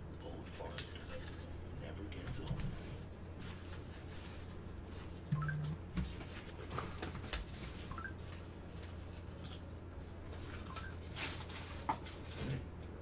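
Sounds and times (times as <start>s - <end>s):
low electrical hum: 0.0s - 13.0s
trading cards and wrappers rustling: 6.0s - 12.6s.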